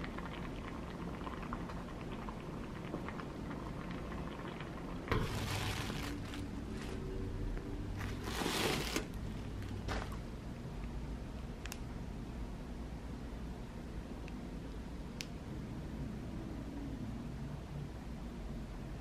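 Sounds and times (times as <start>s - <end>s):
low room hum: 0.0s - 19.0s
tissue paper rustling: 5.1s - 7.0s, 8.0s - 9.1s.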